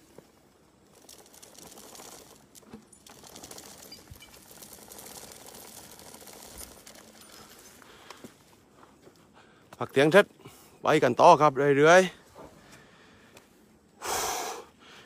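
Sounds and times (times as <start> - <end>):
chain dragging on ground: 0.0 - 10.3
elephant walking over soil: 0.0 - 10.3.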